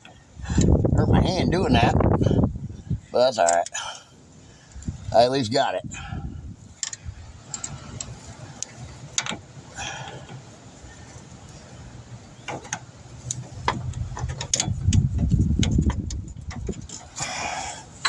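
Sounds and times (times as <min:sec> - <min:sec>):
low rumble: 0:13.2 - 0:17.1.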